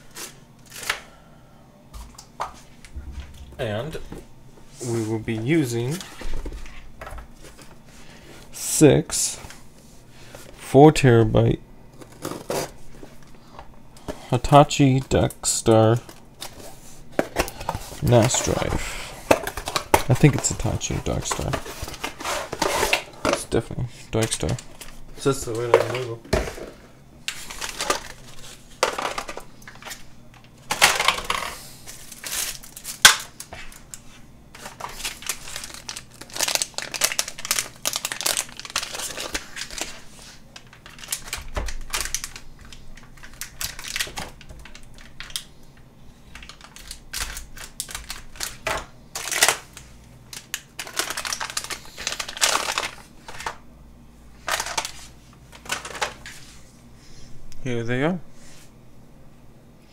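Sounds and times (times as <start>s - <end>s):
plastic and cardboard rustling: 12.0s - 13.3s, 15.8s - 45.5s, 46.3s - 53.6s, 54.4s - 56.7s.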